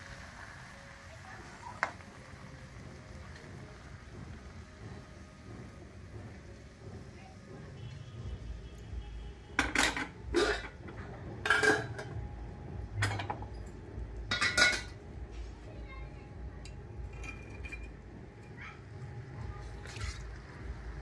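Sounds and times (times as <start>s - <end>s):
metal utensils clanking on pan: 9.6s - 12.2s, 12.9s - 15.1s, 16.6s - 18.6s.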